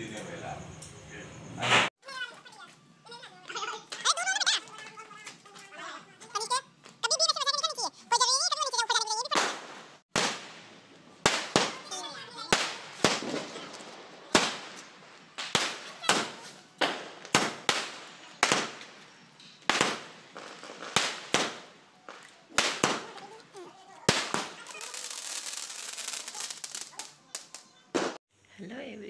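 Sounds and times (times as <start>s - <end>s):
firecrackers banging: 1.5s - 7.8s, 8.9s - 28.2s
steady hiss: 9.4s - 29.0s.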